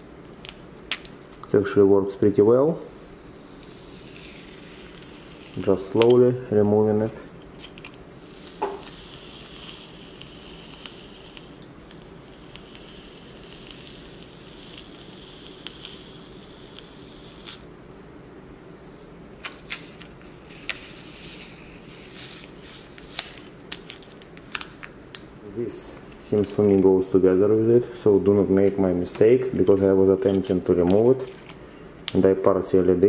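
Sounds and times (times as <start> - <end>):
faint rasp of cable peeling: 3.6 - 6.2.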